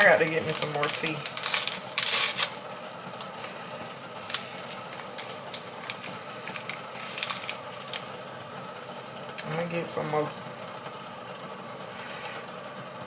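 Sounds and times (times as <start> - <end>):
paper wrappers crinkling: 0.0 - 2.6, 4.2 - 8.1.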